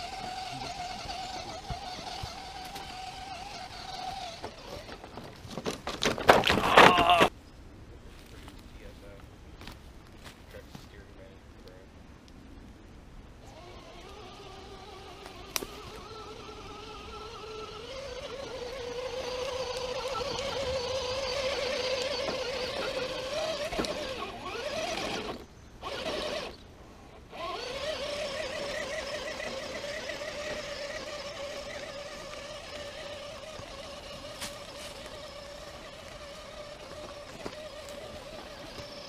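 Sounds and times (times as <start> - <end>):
electric motor whining: 0.0 - 5.3, 13.4 - 39.0.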